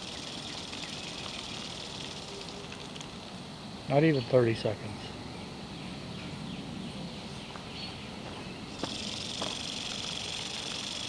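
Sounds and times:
sprinkler spraying hiss: 0.0s - 4.1s, 8.7s - 11.0s
faint insect chirping: 0.0s - 11.0s.

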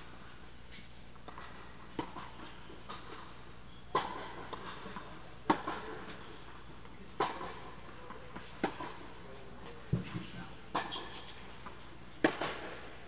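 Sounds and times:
tennis ball struck by rackets: 1.2s - 3.2s, 3.9s - 6.2s, 7.2s - 7.7s, 8.6s - 9.1s, 12.2s - 12.9s.

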